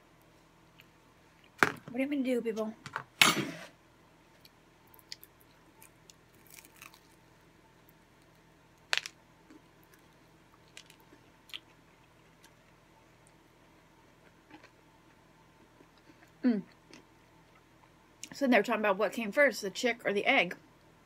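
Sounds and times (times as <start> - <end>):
person chewing crunchy food: 5.0 - 7.2, 9.0 - 12.8, 14.0 - 18.0.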